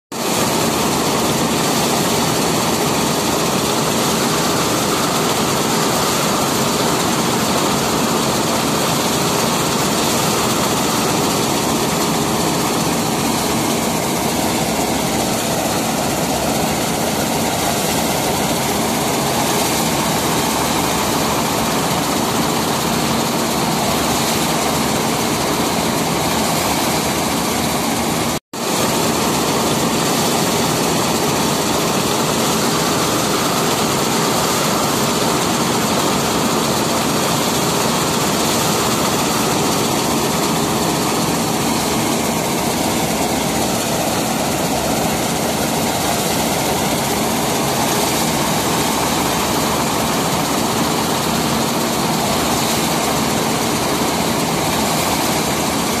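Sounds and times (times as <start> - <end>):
combine harvester engine drone: 0.2 - 56.0.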